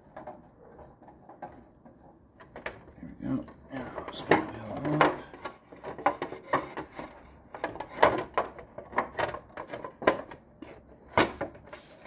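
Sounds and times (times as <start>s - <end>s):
plastic cover clicking and knocking: 2.4s - 3.0s, 4.0s - 11.8s.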